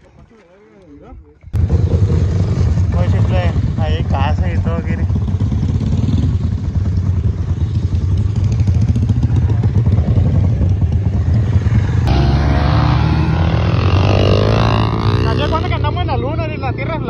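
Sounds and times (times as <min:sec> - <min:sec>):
motorcycle engine running: 0:01.6 - 0:16.2.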